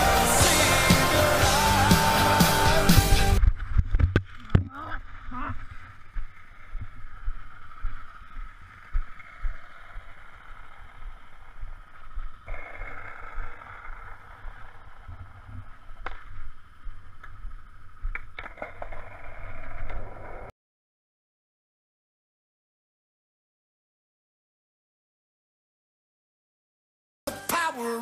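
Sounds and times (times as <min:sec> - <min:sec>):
skateboard wheels rolling on asphalt: 0:00.0 - 0:20.5
skateboard clicking over bumps: 0:18.1 - 0:20.4.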